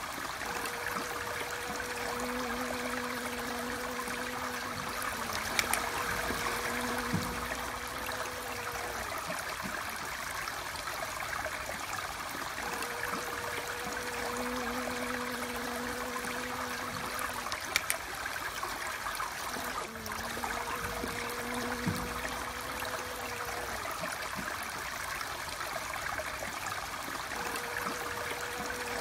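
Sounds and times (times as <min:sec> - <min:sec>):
steady rushing stream: 0:00.0 - 0:29.0
bee buzzing: 0:00.3 - 0:09.7, 0:12.6 - 0:18.0, 0:19.4 - 0:24.5, 0:27.3 - 0:29.0
short click: 0:17.7 - 0:18.0.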